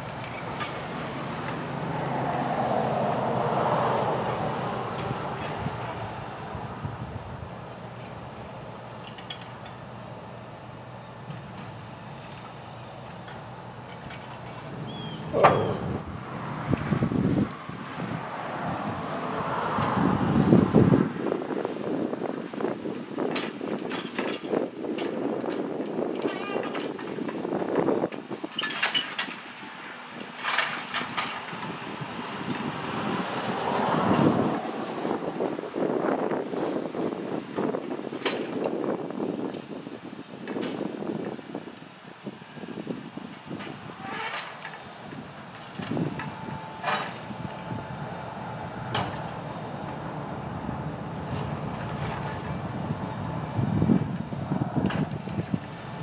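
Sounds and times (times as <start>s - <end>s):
wind on microphone: 0.0s - 8.8s, 14.0s - 56.0s
rushing noise: 42.1s - 56.0s.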